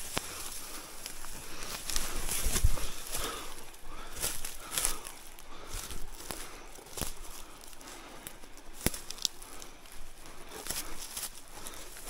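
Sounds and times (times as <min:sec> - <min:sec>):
footsteps crunching dry leaves: 0:00.0 - 0:12.0
twigs cracking: 0:00.0 - 0:12.0.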